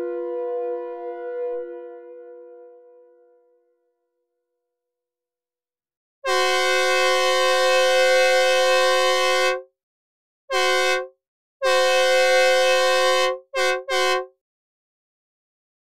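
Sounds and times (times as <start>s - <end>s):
train horn blasts: 0.0s - 3.4s, 6.2s - 9.7s, 10.5s - 14.3s.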